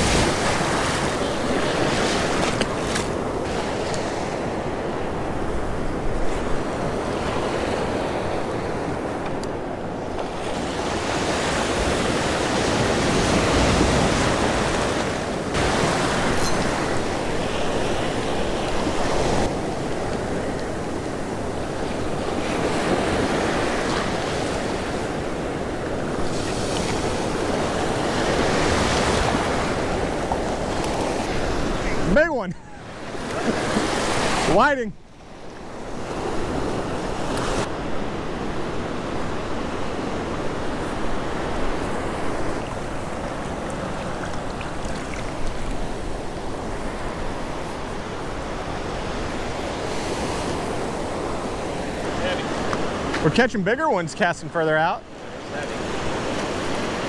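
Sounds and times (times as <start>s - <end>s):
breaking surf: 0.0s - 9.2s, 10.0s - 34.9s.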